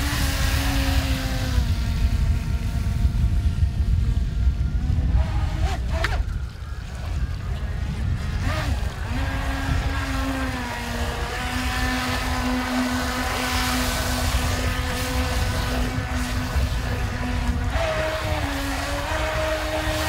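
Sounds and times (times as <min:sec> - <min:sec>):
electric motor high whine: 0:00.0 - 0:20.0
wind rumble on microphone: 0:00.0 - 0:20.0
water rushing: 0:05.2 - 0:20.0.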